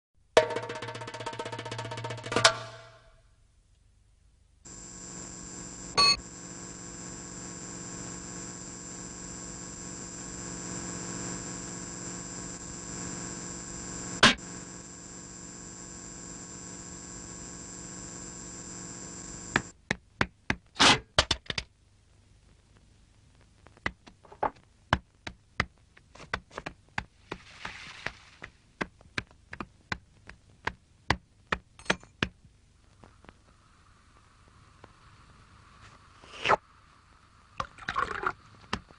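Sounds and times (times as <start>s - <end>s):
steady hum with high whine: 2.6s - 20.0s, 27.7s - 38.9s
irregular sharp clicks and taps: 19.5s - 20.7s, 23.3s - 27.4s, 28.0s - 33.4s.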